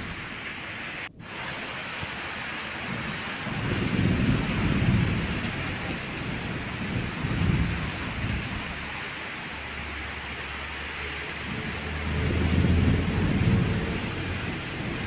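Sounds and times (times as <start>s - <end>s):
low rumbles: 0.0s - 15.0s
rain falling: 0.0s - 15.0s.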